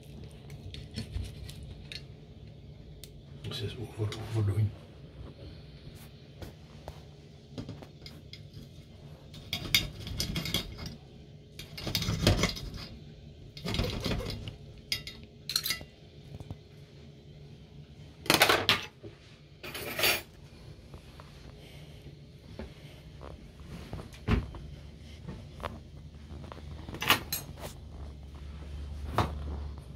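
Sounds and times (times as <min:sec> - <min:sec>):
cutlery scraping and clinking on plate: 0:09.4 - 0:11.0, 0:11.6 - 0:13.0, 0:13.6 - 0:15.9, 0:19.6 - 0:20.3, 0:27.0 - 0:27.8.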